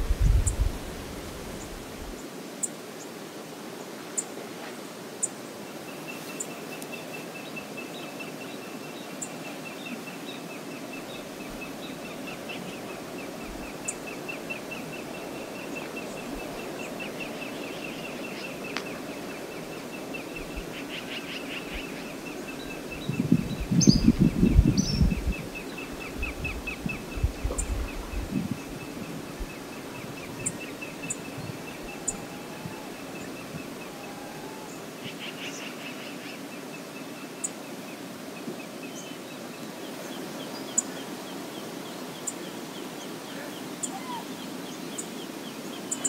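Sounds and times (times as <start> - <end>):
river water rushing: 0.7 - 23.1, 28.6 - 46.0.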